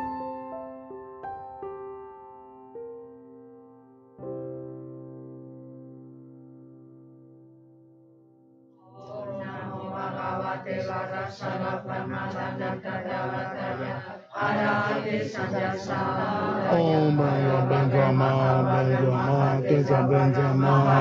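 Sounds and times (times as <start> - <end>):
men and women chanting in unison: 8.9 - 21.0.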